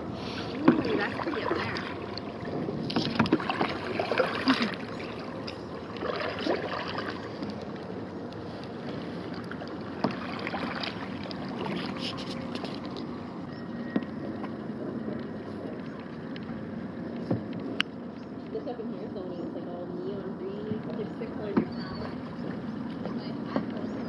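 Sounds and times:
kayak paddles splashing: 0.0 - 17.6.

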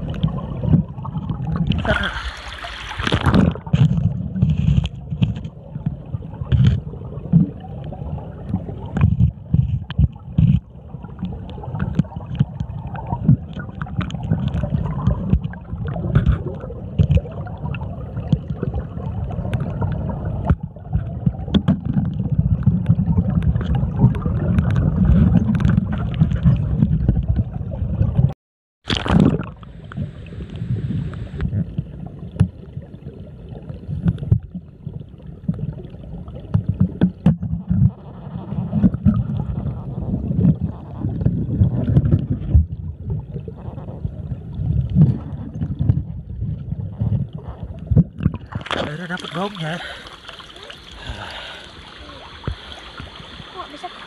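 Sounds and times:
water splash: 0.0 - 5.6, 28.8 - 32.6, 46.9 - 54.0
muffled underwater river rumble: 0.0 - 28.3, 29.0 - 54.0
small underwater knocks: 8.5 - 17.3, 20.4 - 27.5, 31.4 - 32.6, 34.0 - 34.7, 36.4 - 38.0, 40.4 - 42.8, 44.9 - 49.6.

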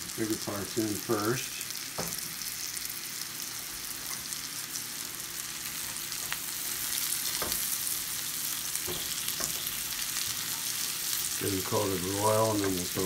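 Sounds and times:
mushrooms sizzling in a skillet: 0.0 - 13.0
utensil stirring and clicking on pan: 8.8 - 13.0.

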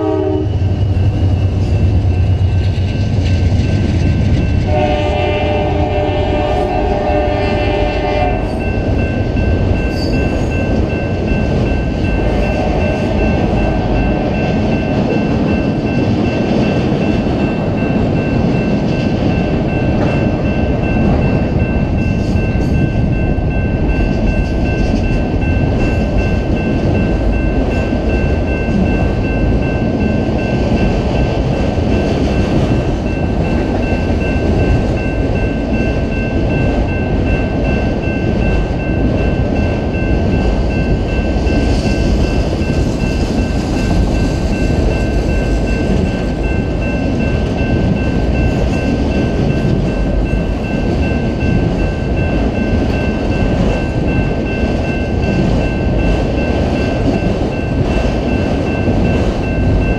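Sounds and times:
locomotive horn: 0.0 - 0.6, 4.7 - 8.6, 12.3 - 13.1
train wheels rumbling on rail: 0.0 - 59.9
high-pitched tone: 5.9 - 59.9.

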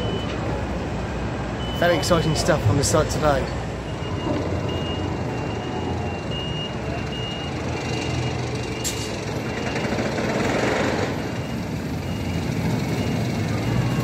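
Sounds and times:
reversing alarm beeping: 0.0 - 0.4, 1.6 - 14.0
machinery engines rumbling: 0.0 - 14.0.

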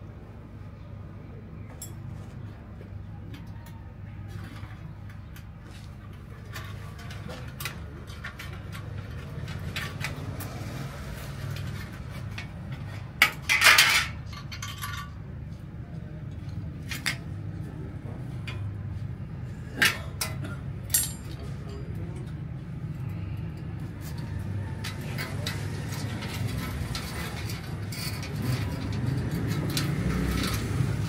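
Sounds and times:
metal tools clinking: 1.7 - 2.2, 11.5 - 15.2, 19.8 - 22.3, 24.6 - 31.0
metallic clatter: 6.2 - 15.2, 19.8 - 22.0, 24.1 - 31.0.

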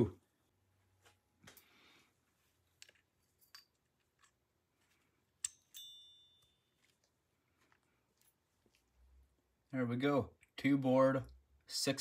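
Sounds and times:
ringing metallic clink: 5.4 - 6.8.

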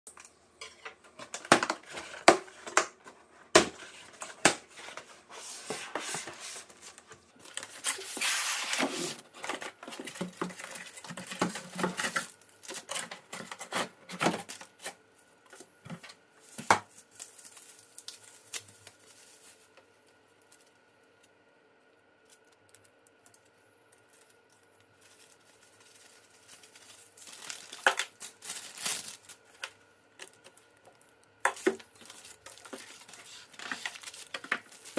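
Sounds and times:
faint steady hum: 0.1 - 34.9
paper rustling: 3.8 - 19.8, 24.0 - 30.6, 31.4 - 34.9
plastic bags crinkling: 7.4 - 15.0, 16.4 - 20.8, 22.2 - 34.9.

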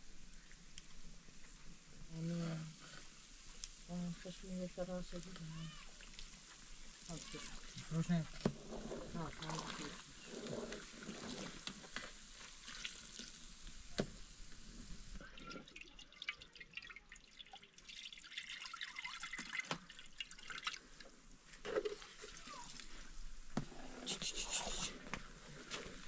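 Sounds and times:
liquid dripping and trickling: 15.2 - 22.6.

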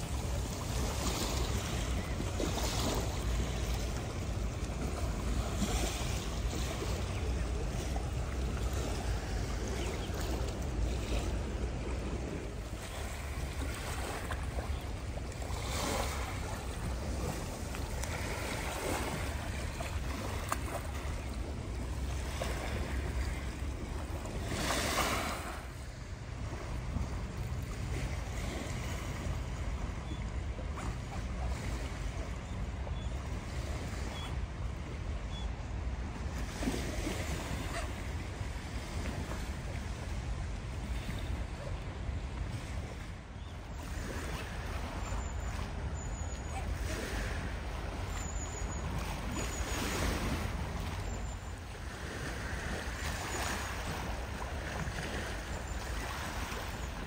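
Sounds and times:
river water rushing: 0.0 - 29.8.

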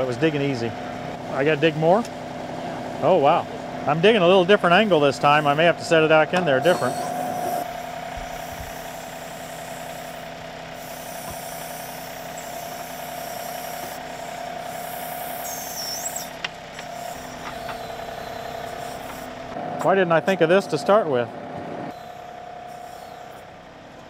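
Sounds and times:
tractor diesel engine running: 0.0 - 24.0
steady tonal hum: 2.5 - 24.0
backhoe digging: 4.0 - 19.9
high squeal: 6.5 - 9.2, 14.7 - 16.3, 21.9 - 23.7.

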